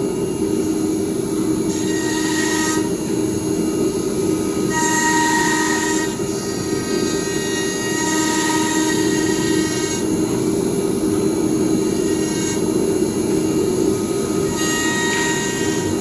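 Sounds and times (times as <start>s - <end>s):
steady machine drone: 0.0s - 16.0s
router spindle cutting wood: 4.6s - 10.2s, 14.0s - 16.0s.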